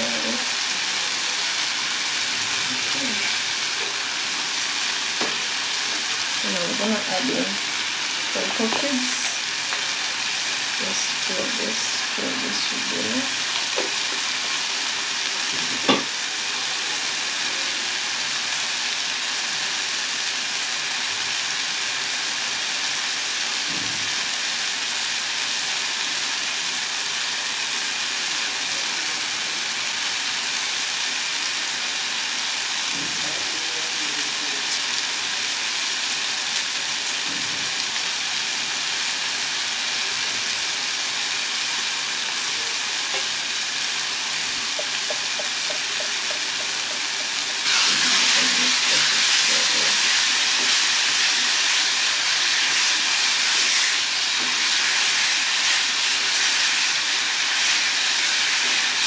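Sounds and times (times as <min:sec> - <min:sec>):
sauce sizzling in pot: 0:00.0 - 0:59.0.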